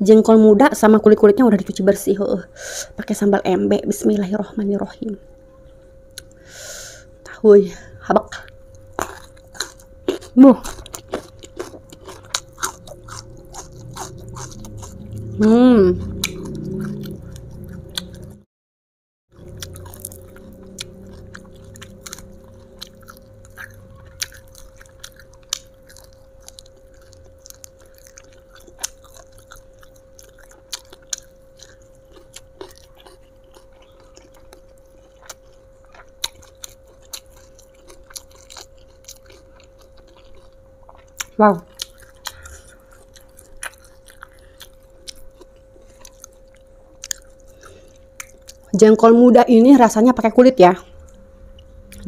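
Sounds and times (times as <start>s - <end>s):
faint steady hum: 0.0s - 18.5s, 19.3s - 52.0s
chewing and crunching beans: 8.4s - 15.4s, 16.0s - 18.4s, 19.4s - 49.0s.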